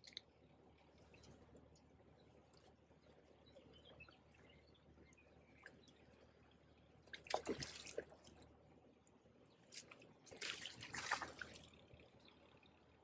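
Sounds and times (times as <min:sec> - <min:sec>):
water splashing: 0:10.3 - 0:11.7.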